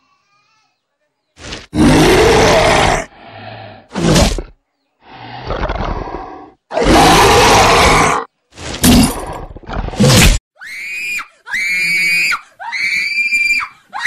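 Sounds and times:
rasping growls: 0:01.4 - 0:10.2
monster roars: 0:01.7 - 0:04.5, 0:05.1 - 0:08.3.

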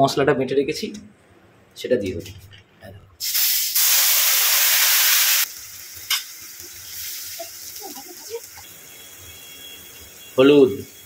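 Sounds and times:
spice paste sizzling in oil: 0:03.2 - 0:11.0.

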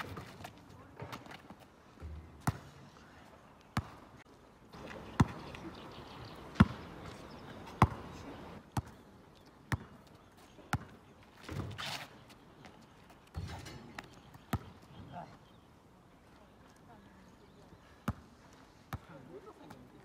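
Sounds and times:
basketball bouncing on asphalt: 0:00.0 - 0:02.7, 0:03.8 - 0:04.0, 0:04.8 - 0:05.5, 0:06.5 - 0:09.0, 0:09.7 - 0:11.8, 0:13.3 - 0:15.0, 0:18.0 - 0:18.3.

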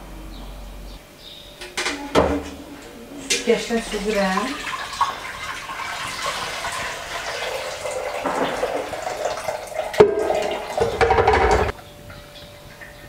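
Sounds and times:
broth splashing through a metal strainer: 0:03.9 - 0:11.7.

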